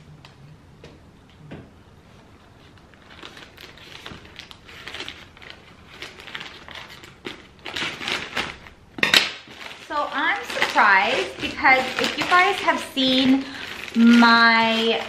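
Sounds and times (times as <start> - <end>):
plastic crinkling: 2.5 - 15.0
scissors cutting plastic: 10.2 - 15.0.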